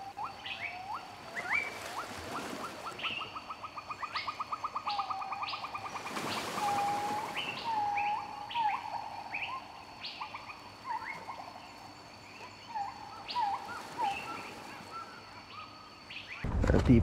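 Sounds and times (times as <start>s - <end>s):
birds whistling: 0.0s - 11.6s, 12.3s - 16.4s.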